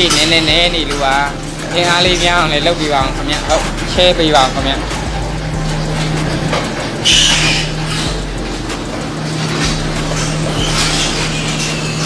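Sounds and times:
low machine hum: 0.0s - 12.0s
piglet squeals: 7.0s - 8.1s.

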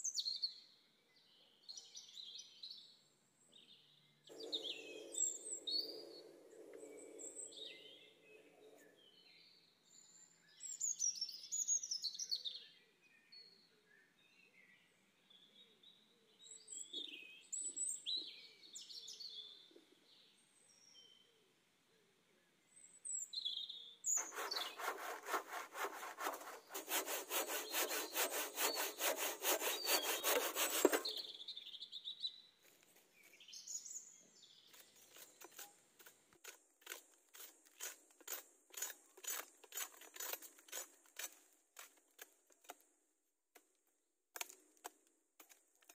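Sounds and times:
birds chirping: 4.3s - 9.2s, 24.1s - 32.4s
hand saw cutting wood: 24.1s - 31.4s, 34.8s - 42.8s.

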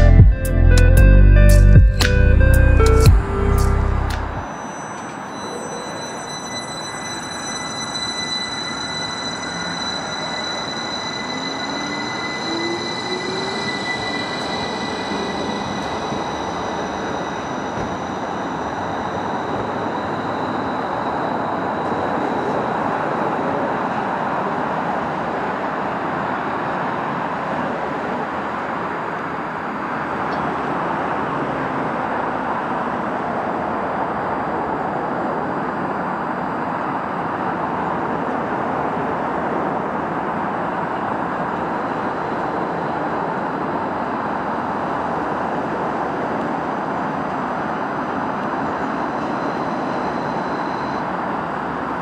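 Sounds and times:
train rumble: 0.0s - 31.6s
electric train motor whine: 2.2s - 25.4s, 40.6s - 52.0s.

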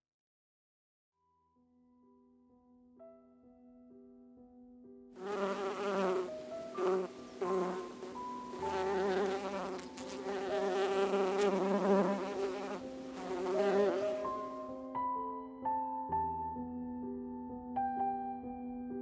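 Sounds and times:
soft piano music: 1.2s - 19.0s
honey bees buzzing: 5.2s - 14.6s.

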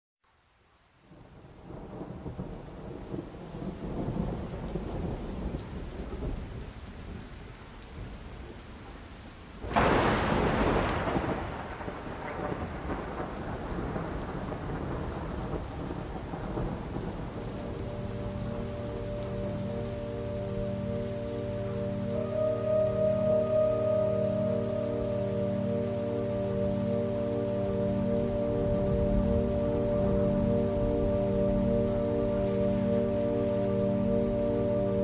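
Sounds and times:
steady rain: 0.2s - 35.0s
loud thunderclap: 9.6s - 18.7s
rumbling thunder: 9.6s - 32.1s.

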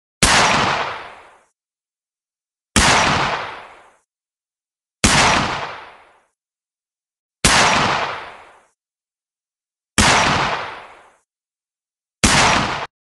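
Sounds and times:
gunshots with echo: 0.2s - 1.5s, 2.8s - 4.0s, 5.0s - 6.3s, 7.4s - 8.7s, 10.0s - 11.2s, 12.2s - 12.9s.

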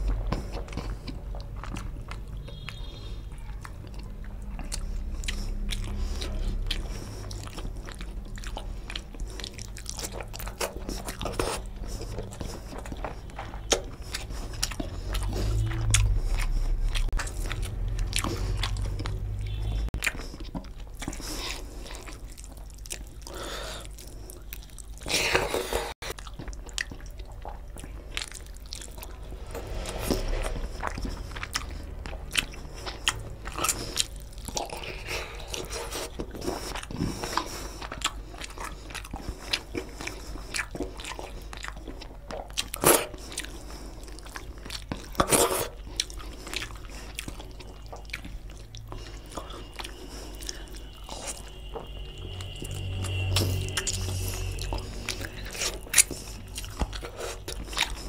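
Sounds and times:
wet chewing and mouth smacking: 0.0s - 58.0s
low rumble: 14.2s - 20.0s, 27.2s - 34.8s, 50.5s - 57.1s.

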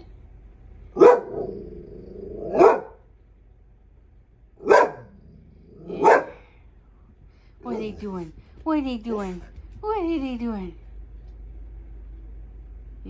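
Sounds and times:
dog barking: 0.9s - 1.6s, 2.4s - 3.0s, 4.6s - 5.2s, 5.9s - 6.5s
dog grumbling: 1.2s - 2.7s, 5.0s - 6.4s, 7.6s - 9.6s.

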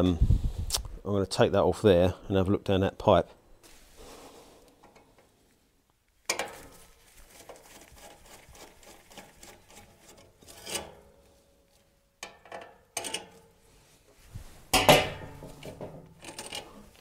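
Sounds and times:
metallic clicks and scrapes: 6.2s - 11.4s, 12.2s - 13.7s, 14.7s - 17.0s
metal pipe knocks: 14.7s - 16.0s.

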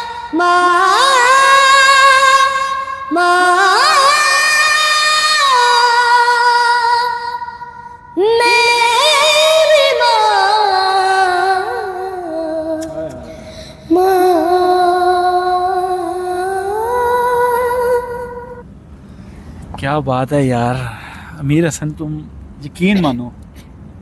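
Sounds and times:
boy singing unaccompanied: 0.0s - 7.4s, 8.2s - 13.3s, 13.9s - 18.6s.

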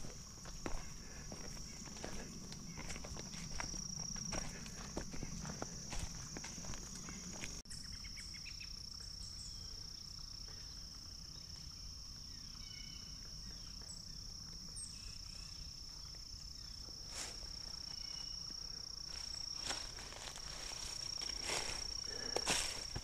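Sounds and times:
insects droning: 0.0s - 23.0s
faint bird chirps: 7.0s - 16.8s.

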